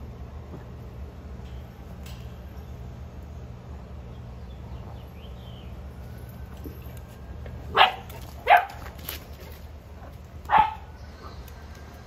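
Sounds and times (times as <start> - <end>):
dog barking: 7.7 - 8.8, 10.5 - 10.9.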